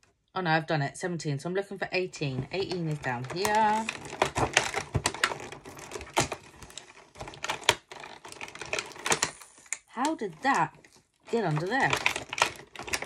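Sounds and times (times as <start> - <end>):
cardboard and plastic rustling: 2.1 - 13.0.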